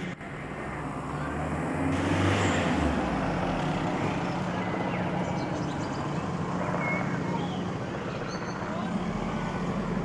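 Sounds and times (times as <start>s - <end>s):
helicopter flying overhead: 2.9s - 10.0s.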